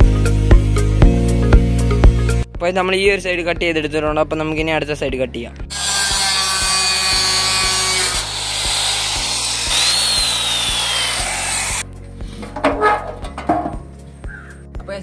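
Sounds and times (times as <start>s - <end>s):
abrasive disc grinding metal: 5.7s - 11.8s.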